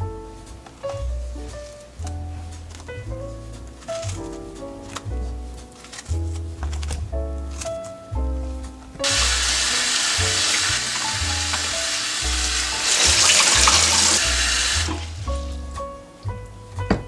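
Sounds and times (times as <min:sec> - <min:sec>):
tap water splashing over fruit: 0:09.0 - 0:15.3.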